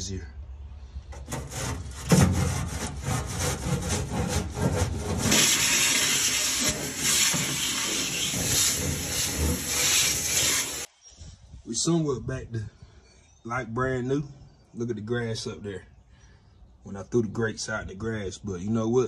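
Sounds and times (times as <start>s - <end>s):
brush scraping ash: 1.1s - 10.9s
vacuum hose sucking: 5.1s - 10.9s.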